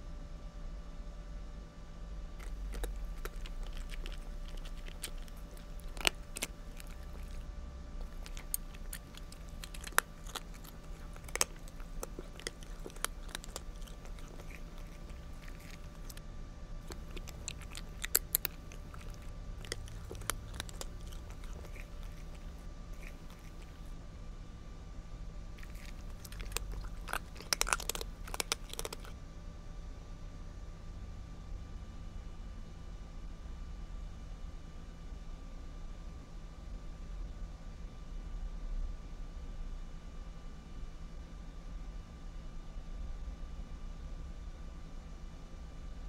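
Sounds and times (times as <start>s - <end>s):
cat crunching dry kibble: 2.4s - 16.2s, 16.8s - 23.9s, 25.6s - 29.1s.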